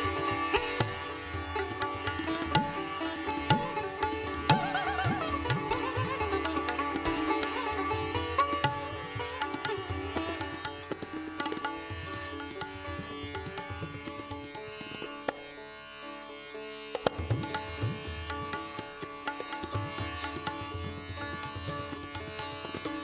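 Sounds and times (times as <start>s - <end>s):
low tabla strokes: 0.0s - 15.4s
sitar plucking a melody: 0.0s - 23.0s.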